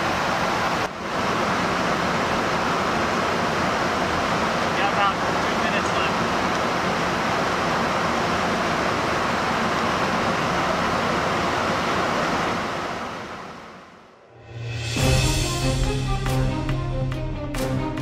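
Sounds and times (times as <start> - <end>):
airflow and aircraft engine noise: 0.0 - 18.0
music: 14.5 - 18.0.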